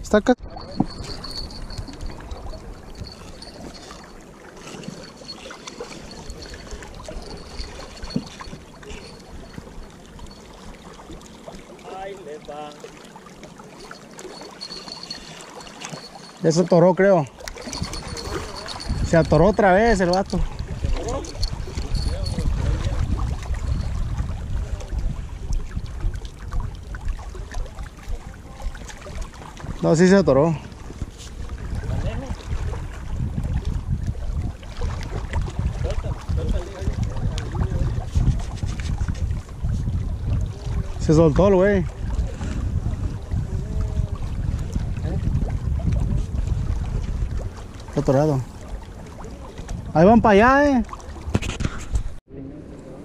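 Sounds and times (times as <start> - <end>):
wind rumble on microphone: 0.0 - 10.9, 17.5 - 53.0
water washing: 0.4 - 39.6.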